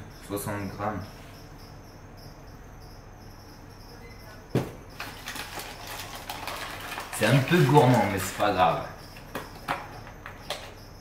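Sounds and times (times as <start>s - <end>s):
cardboard box knocking on counter: 4.5s - 4.8s.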